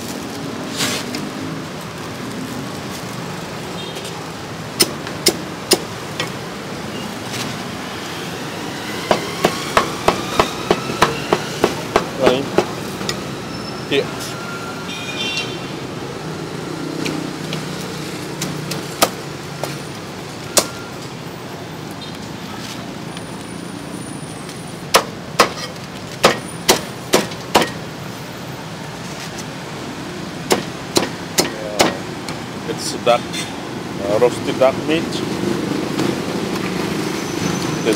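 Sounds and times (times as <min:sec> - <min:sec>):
cleaver chopping on wooden block: 0:09.1 - 0:12.8, 0:24.9 - 0:27.8, 0:30.5 - 0:32.0.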